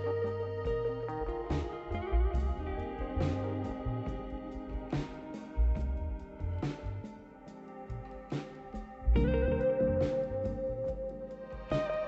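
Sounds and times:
low bass notes: 0.0s - 7.2s, 9.0s - 11.2s
plucked guitar music: 0.0s - 12.0s.

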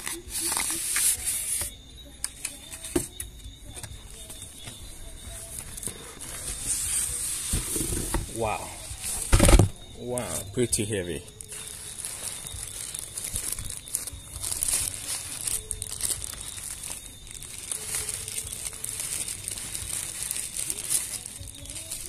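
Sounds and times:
plastic packaging crinkling: 3.8s - 22.0s.

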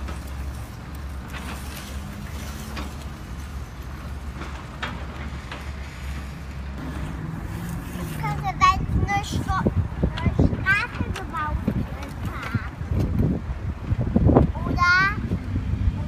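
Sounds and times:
gravel crunching under toy blade: 0.0s - 9.5s.

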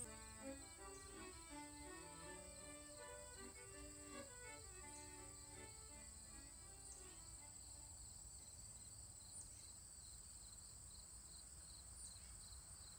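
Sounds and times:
music: 0.0s - 7.9s.

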